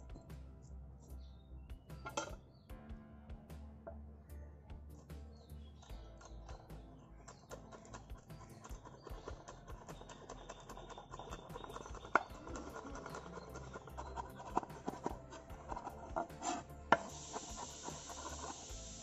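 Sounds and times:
cleaver chopping on wooden board: 14.4 - 17.1
steady hiss: 14.5 - 19.0.

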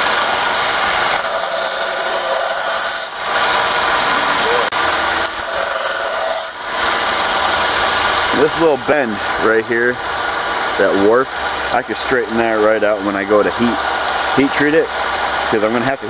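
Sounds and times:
belt sander running: 0.0 - 15.7
file grinding on belt: 1.0 - 7.8.

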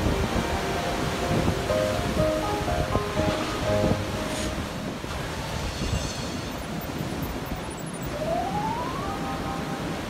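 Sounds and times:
surf rushing: 0.0 - 10.0
wind: 0.0 - 10.0
rising tone: 7.9 - 10.0.

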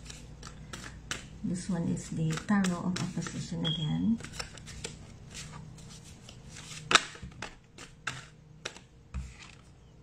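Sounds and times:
cards being shuffled: 0.0 - 1.4, 2.2 - 3.5, 4.2 - 9.8.

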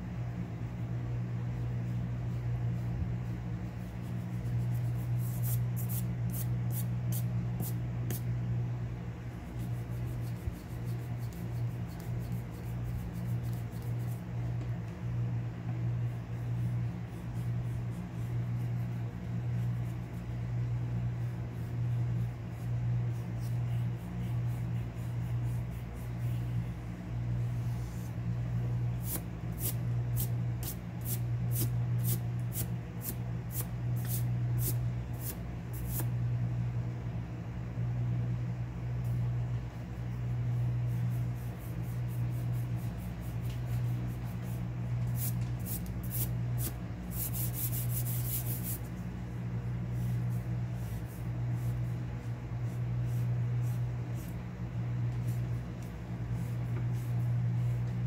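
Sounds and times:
steady low hum: 0.0 - 58.0
eraser rubbing on paper: 1.6 - 8.3, 9.3 - 14.4, 15.9 - 26.7, 29.0 - 36.1, 40.1 - 49.0, 49.9 - 54.4, 55.1 - 57.9.

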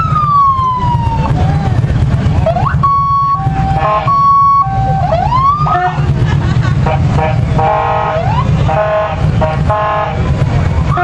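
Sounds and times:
police sirens: 0.0 - 6.2, 6.8 - 8.9
low rumble: 0.0 - 11.0.

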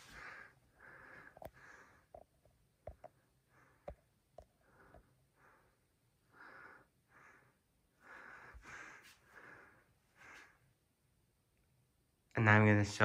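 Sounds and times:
breathing and sniffing: 0.0 - 2.2, 3.5 - 10.7.

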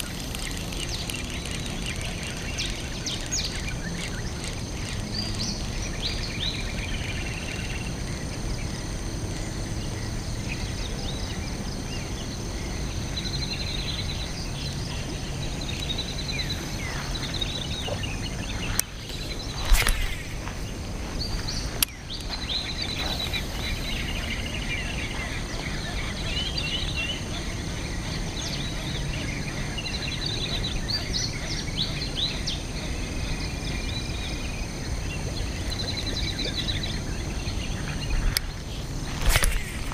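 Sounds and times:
outdoor background noise: 0.0 - 39.9
small birds chirping: 0.0 - 39.9
loud rustle: 18.6 - 21.8, 39.0 - 39.9.

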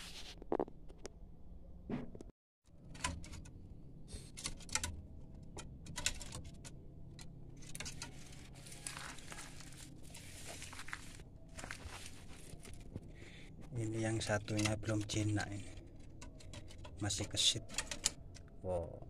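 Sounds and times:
rustling and scraping: 0.0 - 1.1, 5.6 - 18.2.

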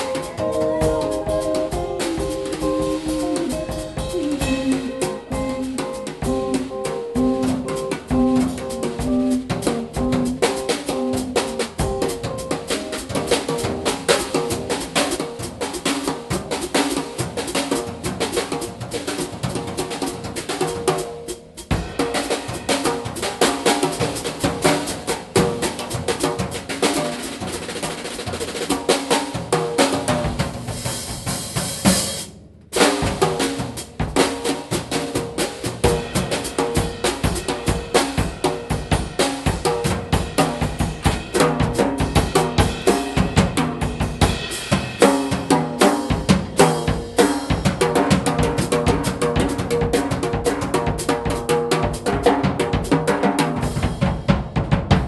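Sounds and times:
electric guitar: 0.0 - 15.5
drum kit playing: 0.0 - 55.0.

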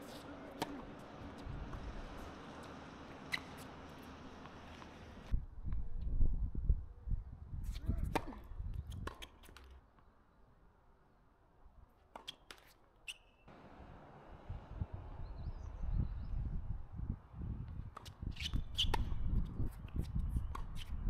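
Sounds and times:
tennis ball on racket strings: 0.0 - 5.3
wind rumble on microphone: 1.3 - 2.1, 5.3 - 9.1, 14.3 - 21.0
shoe squeak: 3.1 - 5.1, 12.3 - 13.5, 18.2 - 19.1.

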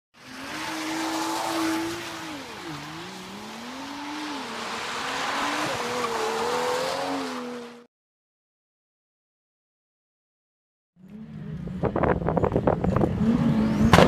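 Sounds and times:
car engine revving: 0.2 - 7.9, 11.0 - 14.0
tyres sliding on wet asphalt: 0.2 - 7.9.

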